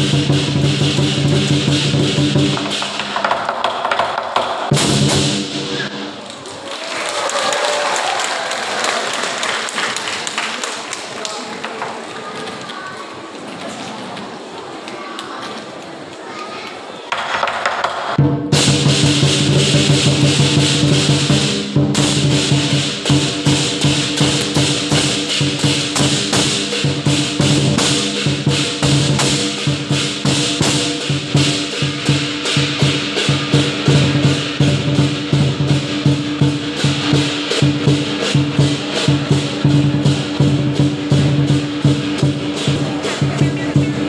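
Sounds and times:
cymbals: 0.0 - 3.5, 4.4 - 6.2, 18.2 - 44.0
drum: 0.0 - 6.2, 17.1 - 44.0.

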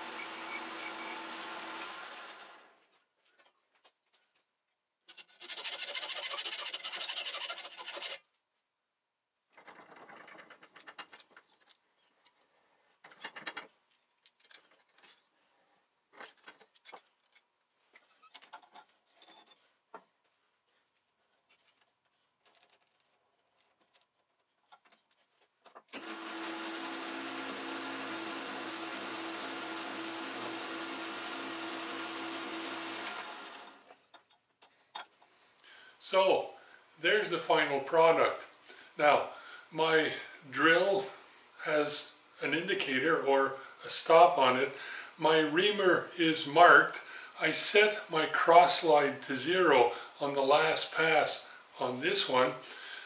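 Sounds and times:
lathe cutting metal: 0.0 - 2.6, 26.0 - 33.7
lathe running: 0.0 - 2.7, 26.0 - 33.9
clicks and clatter of parts: 9.5 - 12.4, 13.0 - 15.3, 16.1 - 20.1, 21.4 - 26.0.

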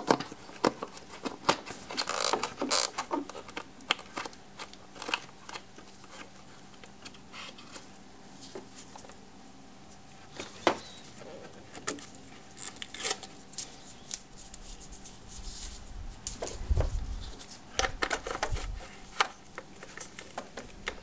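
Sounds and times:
gloved hands rustling: 12.0 - 21.0
plastic clicks: 17.8 - 21.0.

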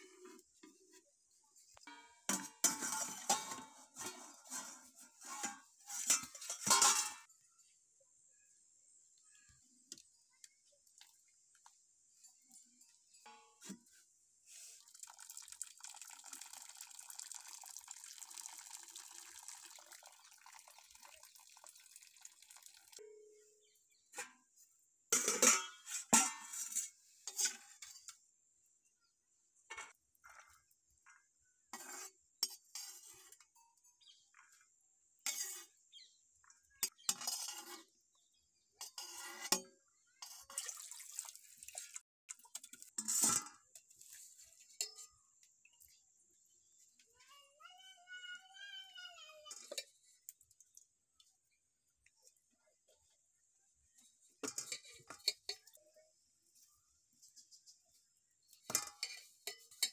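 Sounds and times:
ladle scraping metal pan: 1.8 - 7.3, 25.1 - 28.2, 31.7 - 33.5, 35.2 - 35.8, 36.8 - 38.0, 38.8 - 40.6, 42.9 - 45.2, 54.4 - 55.7, 58.4 - 59.9.

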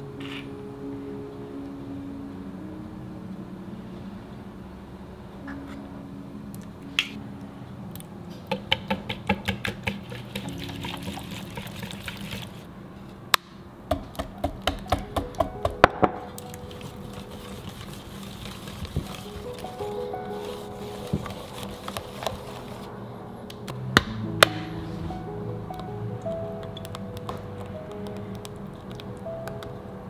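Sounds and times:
whisk clicking against bowl: 8.5 - 12.6.

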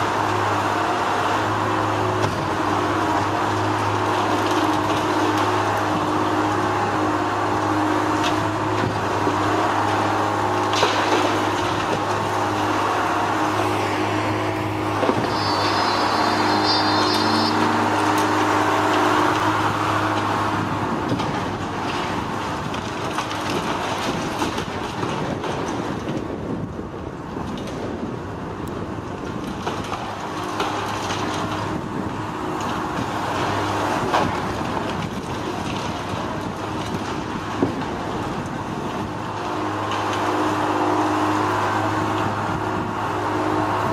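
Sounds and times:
demolition machinery engine drone: 0.0 - 43.9
rough continuous rumble: 0.0 - 43.9
high squeal: 15.2 - 18.4.

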